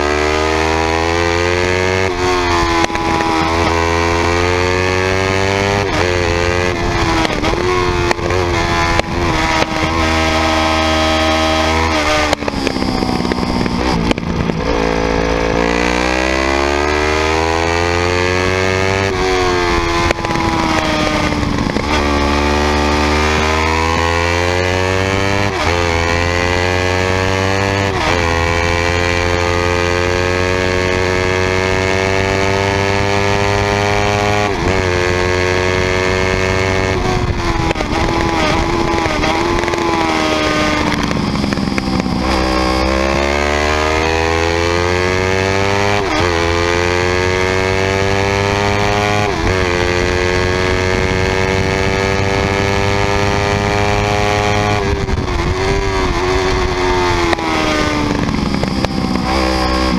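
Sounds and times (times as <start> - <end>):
motorcycle engine revving through gears: 0.0 - 59.9.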